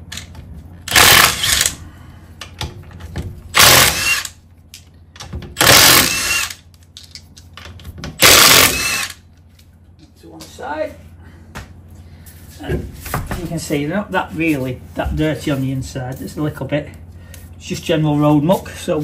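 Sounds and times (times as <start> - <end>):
impact wrench hammering: 3.5 - 4.3, 5.2 - 6.6, 8.1 - 9.2.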